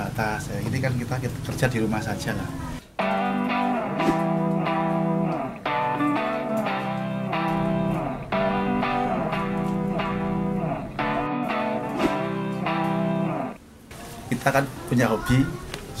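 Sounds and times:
instrumental guitar music: 2.9s - 13.6s.

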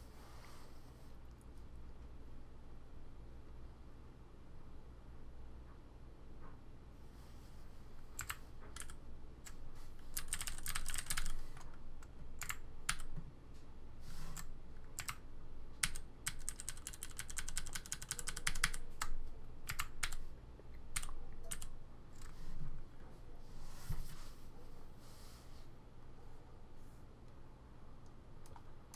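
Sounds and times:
clicky mechanical keyboard typing: 8.2s - 13.2s, 14.4s - 15.2s, 15.8s - 20.2s, 20.9s - 22.4s, 28.4s - 28.9s.

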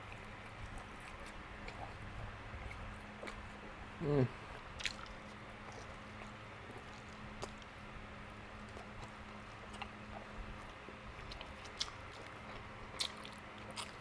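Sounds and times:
chewing meat: 0.0s - 14.0s
faint steady hum: 0.0s - 14.0s.

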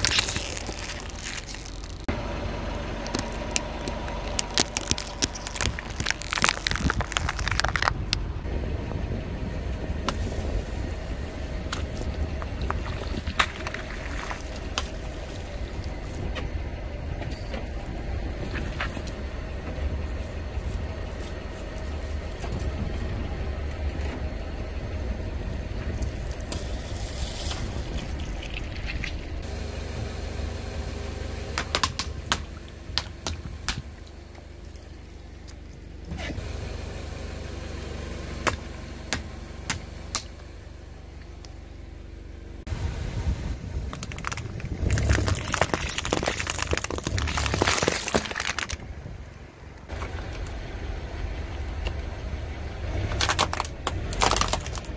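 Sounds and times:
bags bursting with sharp pops: 0.0s - 2.1s, 3.1s - 8.1s, 44.0s - 48.8s
wet squashing of water beads: 0.0s - 2.1s, 3.0s - 8.2s, 12.4s - 16.2s, 43.8s - 48.8s, 53.1s - 54.9s
car engine rumbling: 0.0s - 54.9s.

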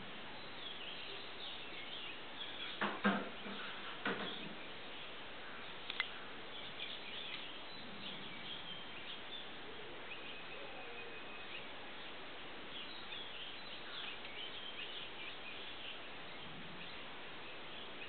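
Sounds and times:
steady background hiss: 0.0s - 18.0s.

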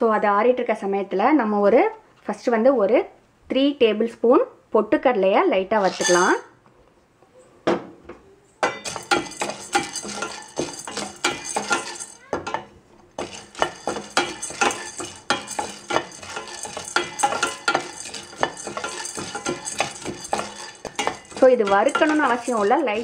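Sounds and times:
wooden spatula scraping: 5.8s - 6.5s, 8.8s - 12.2s, 13.2s - 23.0s
grains rattling in steel pan: 8.7s - 12.3s, 13.2s - 23.0s.

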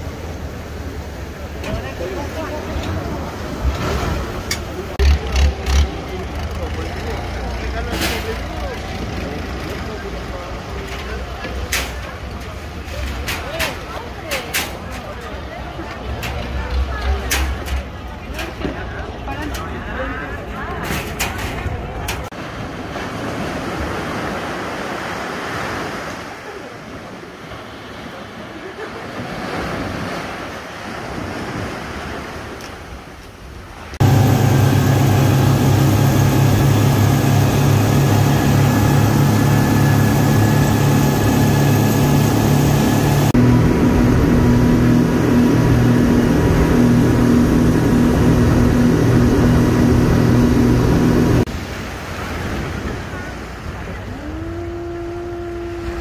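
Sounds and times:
rushing water: 0.0s - 56.0s
surf washing on beach: 0.0s - 56.0s
wind: 0.0s - 56.0s
speedboat engine running: 0.1s - 20.8s, 34.0s - 51.5s, 52.2s - 56.0s.

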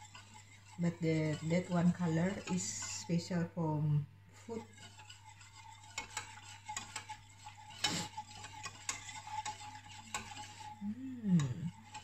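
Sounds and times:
spoon scraping metal saucepan: 0.0s - 3.5s, 4.4s - 12.0s
person humming: 10.8s - 11.8s.

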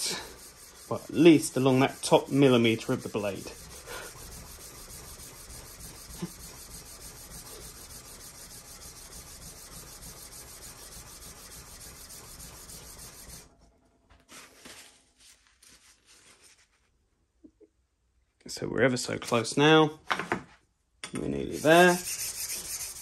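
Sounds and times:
cloth rustling: 14.2s - 17.0s.

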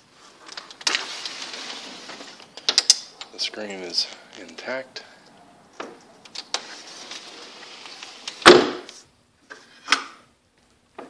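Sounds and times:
window sash sliding with hiss: 0.8s - 2.5s, 6.5s - 9.1s.

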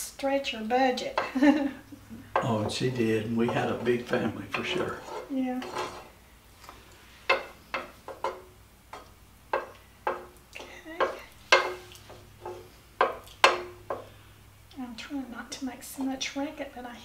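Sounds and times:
wooden spoon knocking on metal pot: 2.2s - 6.1s, 7.3s - 14.2s.

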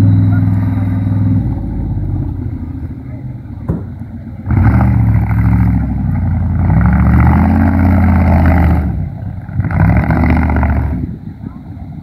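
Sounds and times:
offroad truck engine under load: 0.0s - 12.0s.

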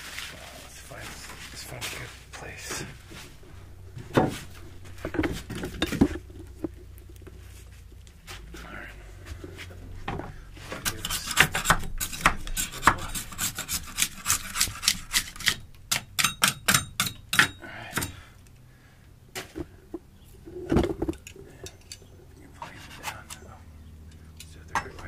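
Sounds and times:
scraper rasping on foam: 10.9s - 15.4s.

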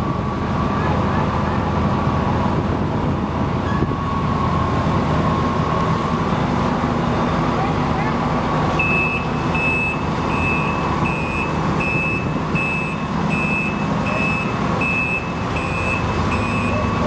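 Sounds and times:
engine running: 0.0s - 17.0s
reversing alarm beeping: 8.7s - 17.0s.

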